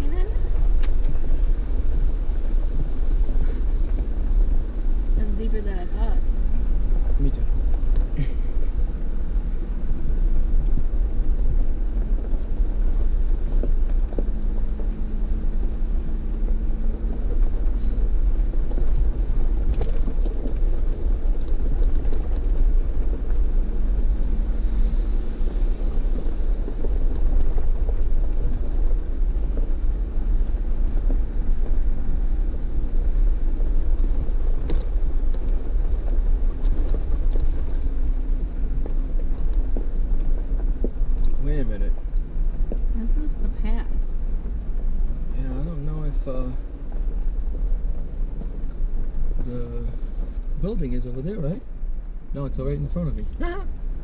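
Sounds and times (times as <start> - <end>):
faint steady hum: 0.0 - 54.0
vehicle engine rumbling: 0.0 - 54.0.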